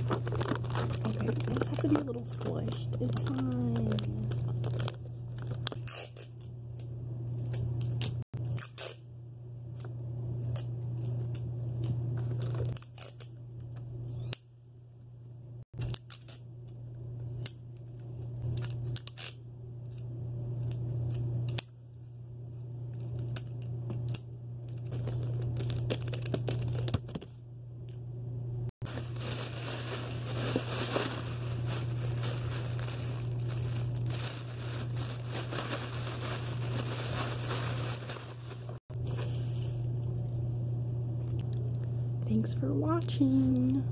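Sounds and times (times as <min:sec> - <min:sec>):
tissue paper crinkling: 0:00.0 - 0:06.0, 0:28.8 - 0:39.8
wrapping paper rustling: 0:00.0 - 0:06.4, 0:22.9 - 0:27.2, 0:28.8 - 0:39.9
steady low hum: 0:00.0 - 0:43.9.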